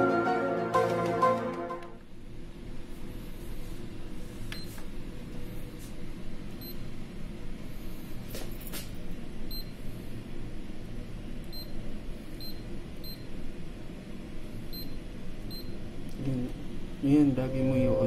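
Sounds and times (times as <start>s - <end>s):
low hum: 16.6s - 18.0s.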